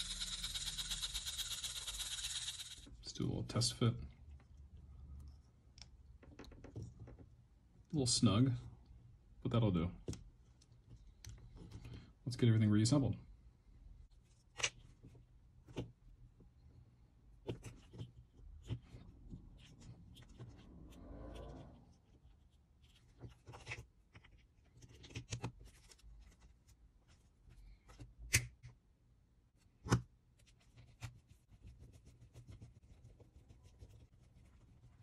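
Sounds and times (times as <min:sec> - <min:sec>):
wires rubbing and rustling: 0:17.4 - 0:28.1.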